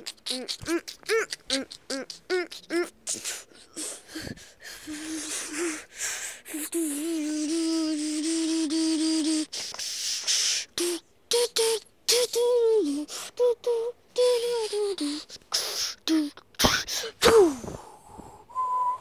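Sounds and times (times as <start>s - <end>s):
person making mouth noises: 0.0s - 3.9s.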